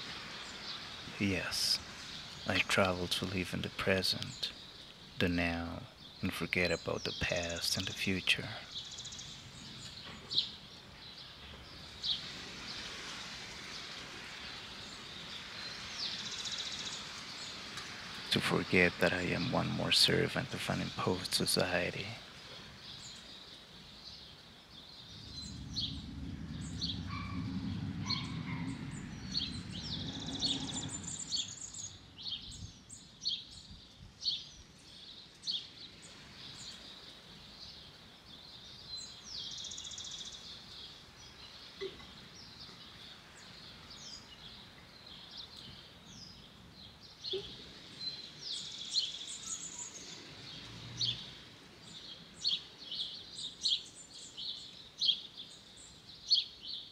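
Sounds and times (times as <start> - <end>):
small birds chirping: 0.0 - 56.9
outdoor background hum: 24.9 - 32.4
low engine drone: 25.1 - 31.6.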